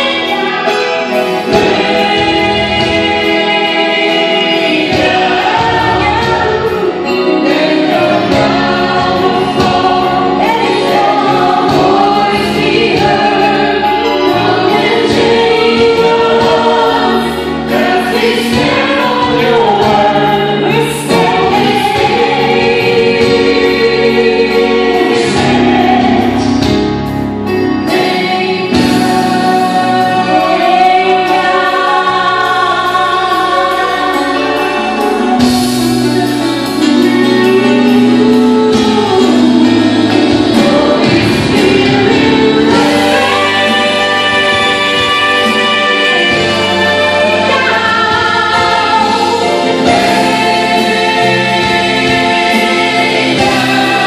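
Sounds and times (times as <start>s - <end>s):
voices singing along: 0.0s - 26.8s, 27.8s - 54.0s
woman singing into microphone: 0.0s - 26.8s, 27.8s - 54.0s
band accompaniment: 0.0s - 54.0s.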